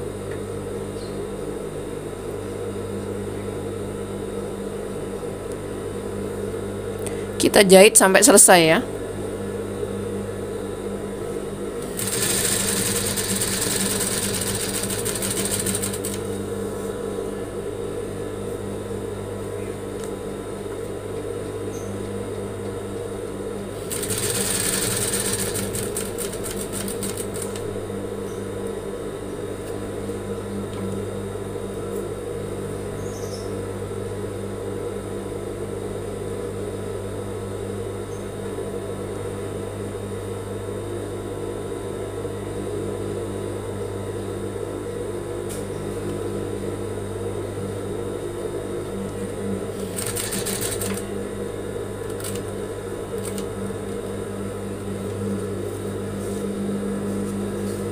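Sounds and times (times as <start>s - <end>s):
sewing machine stitching: 11.8s - 16.3s, 23.8s - 27.7s, 49.8s - 51.0s.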